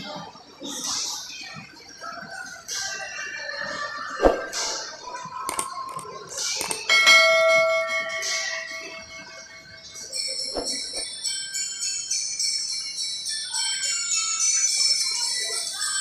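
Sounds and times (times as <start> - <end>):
bell chime ringing out: 6.9 - 11.7.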